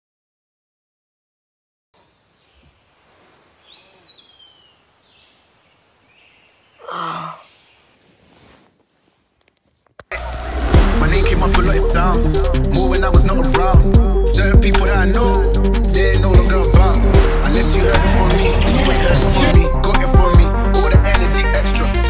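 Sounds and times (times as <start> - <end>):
faint bird chirps: 2.0 - 8.1
person groaning sleepily: 6.8 - 7.5
hip-hop music with deep bass: 10.2 - 22.0.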